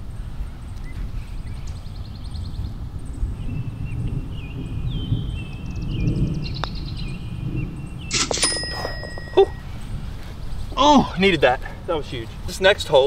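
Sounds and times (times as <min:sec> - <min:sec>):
birdsong: 0:00.1 - 0:11.6
wind rumble: 0:01.8 - 0:10.8
ball clattering into metal cup: 0:08.1 - 0:09.6
putter striking golf ball: 0:08.1 - 0:09.6.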